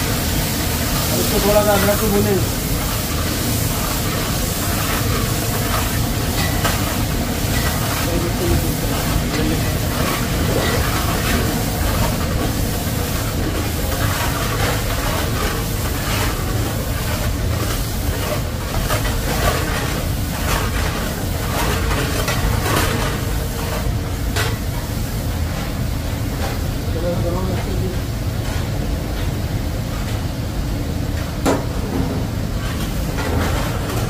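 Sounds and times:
spices sizzling in hot oil: 0.0 - 34.0.

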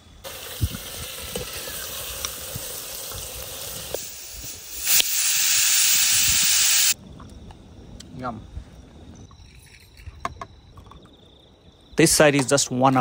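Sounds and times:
wood fire crackling: 0.2 - 7.5.

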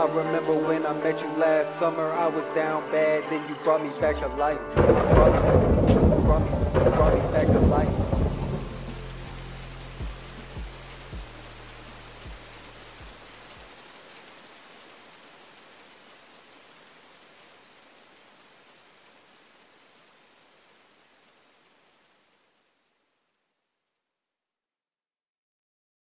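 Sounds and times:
steady rain falling: 0.0 - 24.1
low rumble: 4.8 - 11.3.

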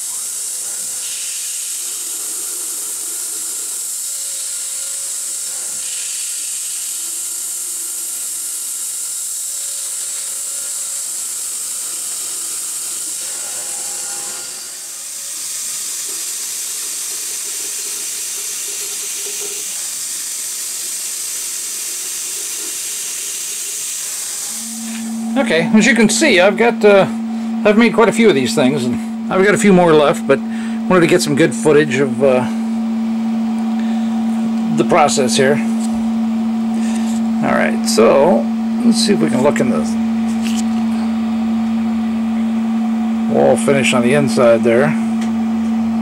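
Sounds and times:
air nozzle hissing: 0.2 - 13.2, 15.3 - 25.3.

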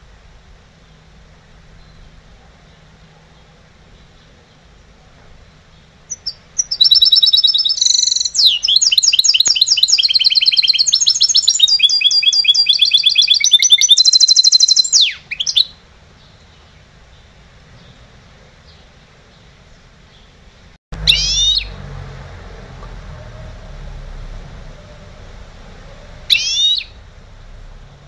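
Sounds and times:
songbird singing fast trills: 5.7 - 20.4, 21.0 - 21.7, 26.0 - 28.0.

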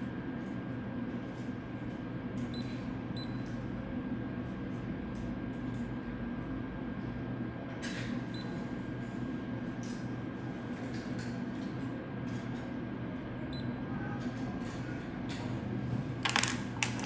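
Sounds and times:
dental equipment humming: 12.5 - 17.0.

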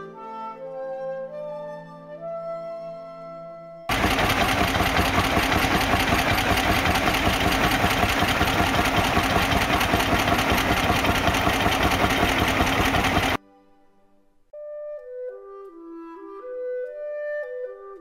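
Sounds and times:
tractor engine beating steadily: 3.9 - 13.4.

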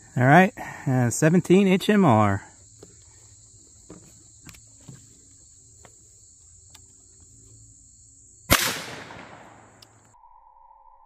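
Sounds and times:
high buzz of insects: 0.0 - 10.2
rifle shot: 8.5 - 9.9.

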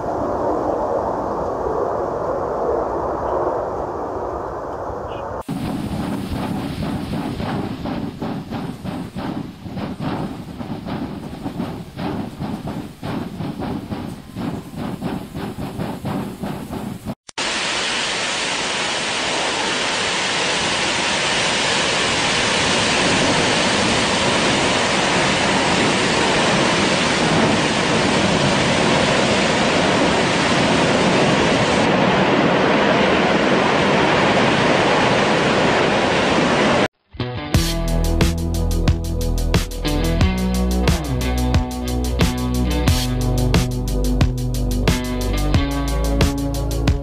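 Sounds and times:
steam locomotive chuffing: 5.5 - 17.2
high-pressure gas hissing: 15.4 - 23.7.

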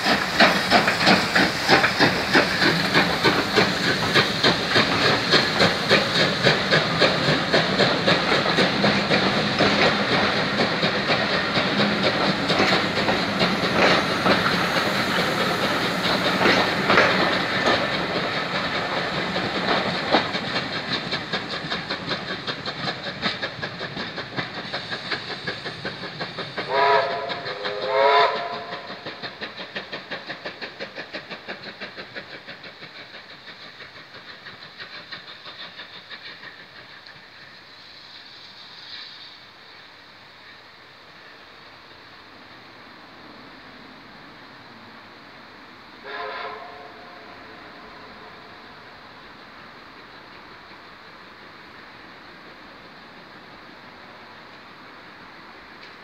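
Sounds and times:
train wheel clicks: 0.0 - 39.2, 55.7 - 56.0
hissing steam: 0.0 - 56.0
steam locomotive exhaust chuffs: 0.0 - 56.0
steam whistle blasts: 26.7 - 28.9, 46.0 - 47.6.

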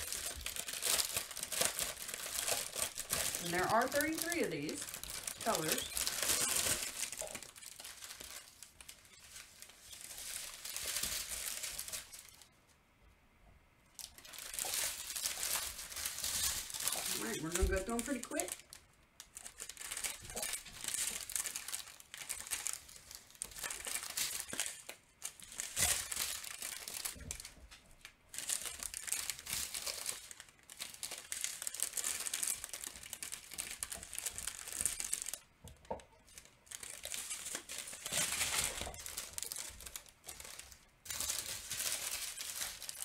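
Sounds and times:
plastic bags crinkling: 0.0 - 12.5, 13.9 - 43.0.

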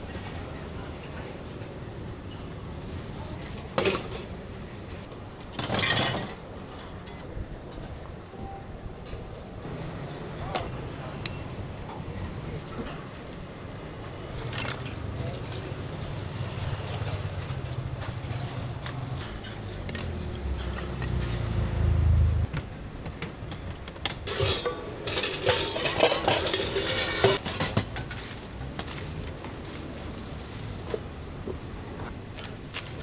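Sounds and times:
steel bowls clattering: 24.3 - 28.5.

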